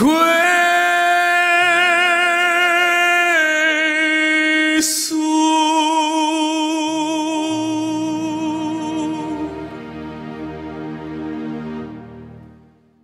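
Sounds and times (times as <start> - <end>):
man singing with vibrato: 0.0 - 10.2
soft musical accompaniment: 0.0 - 13.0.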